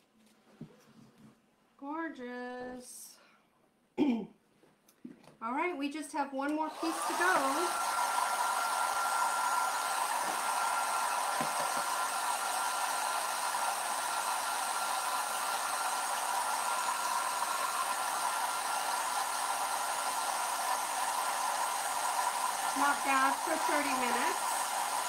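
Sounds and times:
electric blower running: 0:06.6 - 0:25.0.

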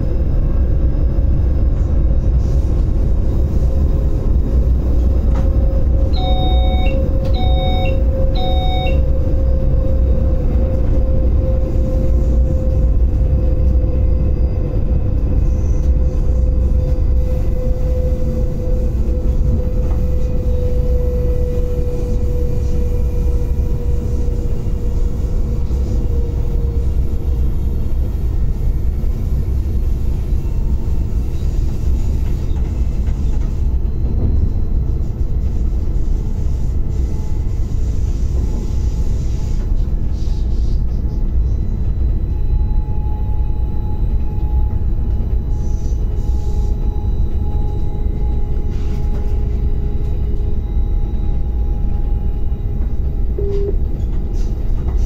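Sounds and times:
train low rumble: 0:00.0 - 0:55.0
short electronic beeps: 0:06.2 - 0:09.1, 0:53.4 - 0:53.9.

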